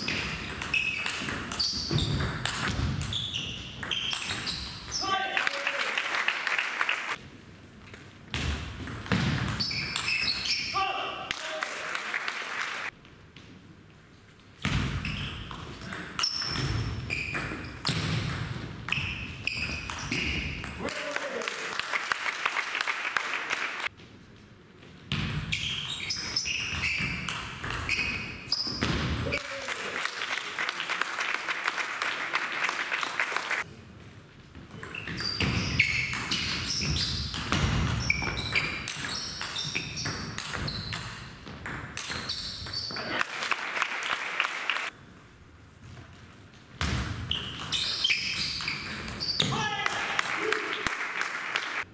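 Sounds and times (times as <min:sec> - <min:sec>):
shoes squeaking on floor: 0:00.0 - 0:05.0, 0:09.5 - 0:10.8, 0:14.6 - 0:18.0, 0:18.9 - 0:20.7, 0:25.4 - 0:29.0, 0:34.5 - 0:41.5, 0:42.1 - 0:43.1, 0:47.2 - 0:49.6.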